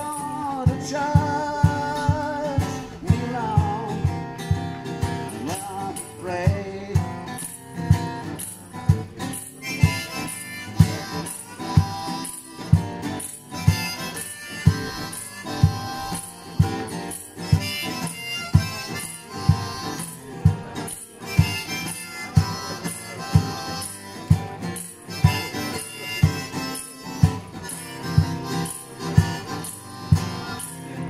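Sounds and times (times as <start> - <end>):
strummed guitar: 0.0 - 31.0
harmonica playing bending notes: 7.4 - 31.0
steady low beat: 8.8 - 31.0.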